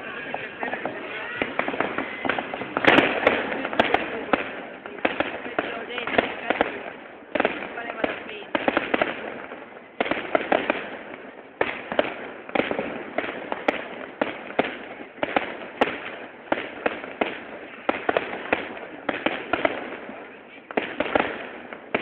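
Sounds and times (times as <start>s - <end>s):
fireworks bangs: 0.0s - 22.0s
fireworks crackle: 0.0s - 22.0s.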